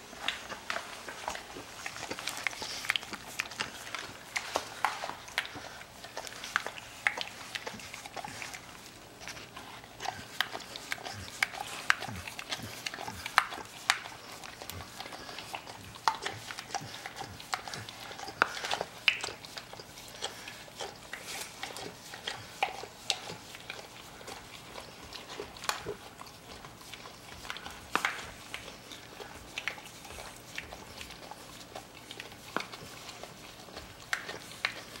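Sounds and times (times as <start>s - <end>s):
dogs licking plastic board: 0.1s - 35.0s.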